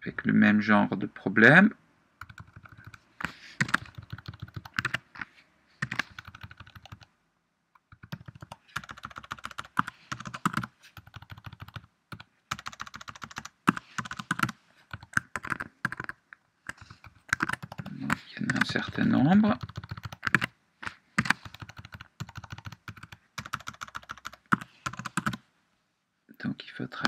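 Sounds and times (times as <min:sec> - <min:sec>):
typing on computer keyboard: 0:02.2 - 0:03.0, 0:03.6 - 0:05.0, 0:05.8 - 0:07.1, 0:07.8 - 0:19.0, 0:19.6 - 0:20.5, 0:21.2 - 0:25.4.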